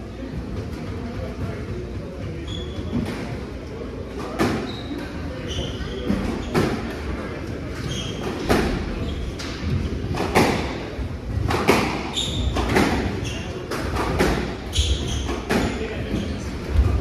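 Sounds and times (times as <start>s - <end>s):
shoes squeaking on wooden floor: 2.4s - 3.0s, 7.7s - 9.3s, 11.8s - 16.5s
squash ball cracking off rackets and walls: 11.4s - 15.8s.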